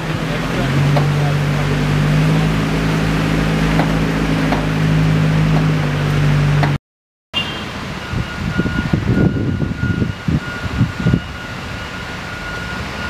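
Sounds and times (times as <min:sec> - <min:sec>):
vehicle engine droning: 0:00.0 - 0:06.8
vehicle knocks and rattles: 0:03.7 - 0:04.8, 0:05.5 - 0:05.8.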